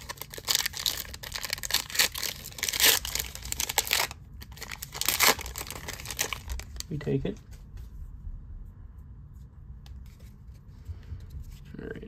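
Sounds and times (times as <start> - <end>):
foil wrapper tearing and crinkling: 0.0 - 6.9.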